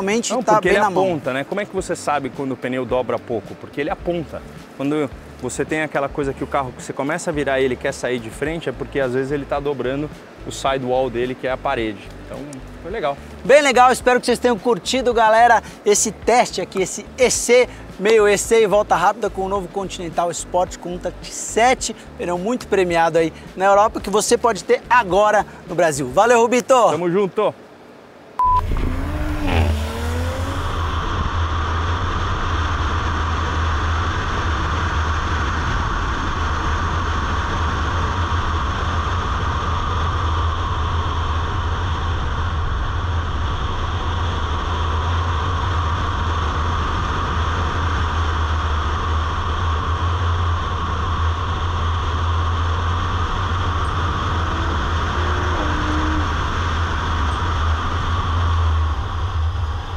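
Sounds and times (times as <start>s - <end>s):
deep engine rumble: 0.0s - 23.5s, 28.4s - 59.9s
wind and tyre noise: 0.0s - 59.9s.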